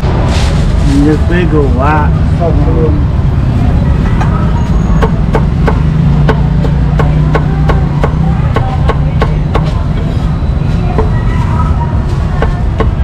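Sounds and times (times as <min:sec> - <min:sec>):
cleaver chopping on wooden block: 0:05.0 - 0:09.8.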